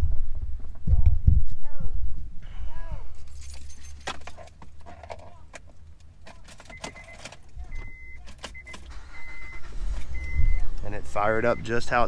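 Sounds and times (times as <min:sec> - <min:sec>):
key clicking in ignition: 0:03.5 - 0:10.9
dashboard warning chime beeps: 0:06.6 - 0:12.0.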